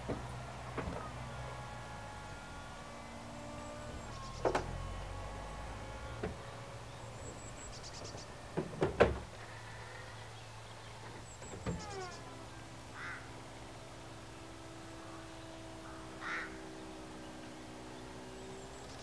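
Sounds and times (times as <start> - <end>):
roof sections clunking: 0.0 - 9.9, 10.9 - 12.5
motor whine: 0.0 - 19.0.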